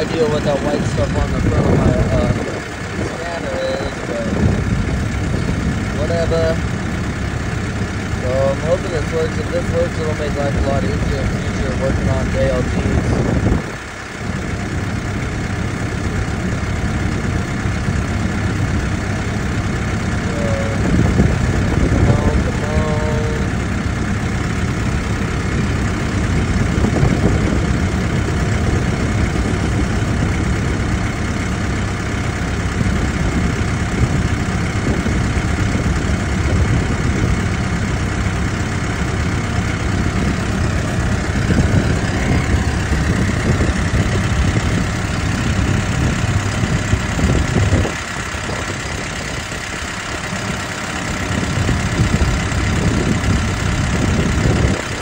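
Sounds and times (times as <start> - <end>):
diesel engine idling: 0.0 - 55.0.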